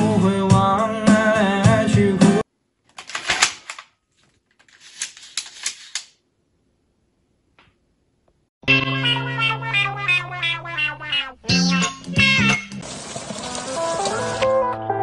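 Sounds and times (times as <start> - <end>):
background music: 0.0 - 2.4, 8.6 - 15.0.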